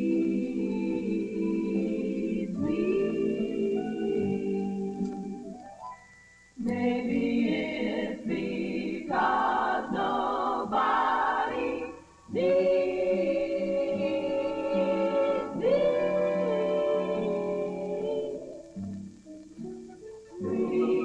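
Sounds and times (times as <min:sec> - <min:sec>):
women singing in close harmony: 0:00.0 - 0:05.4, 0:06.6 - 0:18.7, 0:20.4 - 0:21.0.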